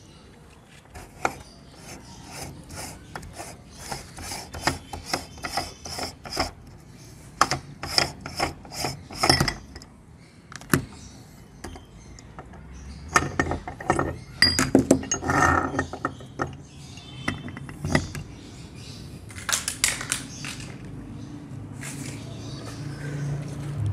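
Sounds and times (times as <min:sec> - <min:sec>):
metal knocks and scraping: 0:00.9 - 0:06.7, 0:07.4 - 0:09.9, 0:11.6 - 0:18.4.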